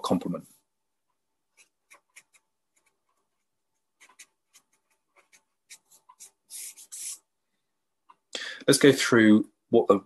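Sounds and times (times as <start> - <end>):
felt-tip pen scratching paper: 1.5 - 7.2.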